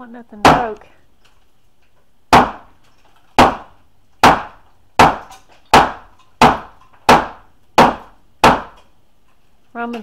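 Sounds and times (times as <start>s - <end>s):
hammer striking wooden framing: 0.4s - 0.8s, 2.3s - 8.9s.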